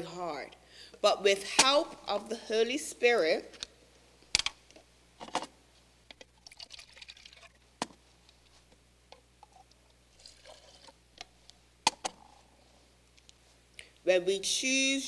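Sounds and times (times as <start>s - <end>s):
liquid pouring into plastic bottle: 6.4s - 7.6s, 10.2s - 11.0s.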